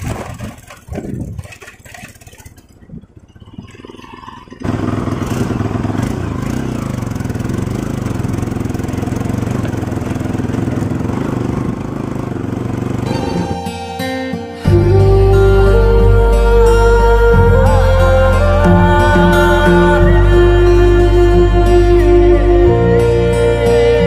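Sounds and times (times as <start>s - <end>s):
motorcycle engine running: 0.0s - 13.5s.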